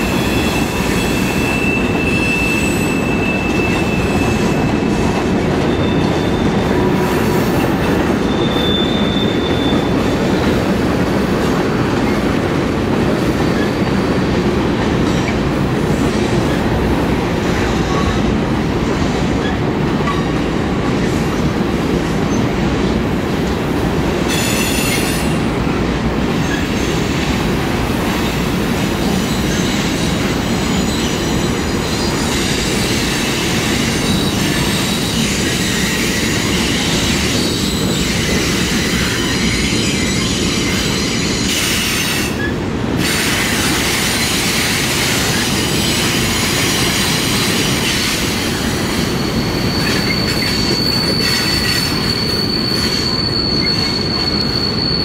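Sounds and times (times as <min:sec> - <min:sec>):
steel wheels rumbling on rail: 0:00.0 - 0:55.0
high-pitched wheel squeal: 0:00.1 - 0:10.1, 0:45.3 - 0:55.0.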